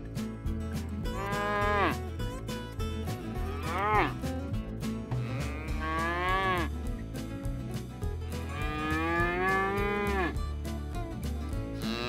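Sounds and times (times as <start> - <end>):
cattle mooing: 1.2 - 2.0, 3.5 - 4.2, 5.2 - 6.7, 8.4 - 10.4, 11.8 - 12.0.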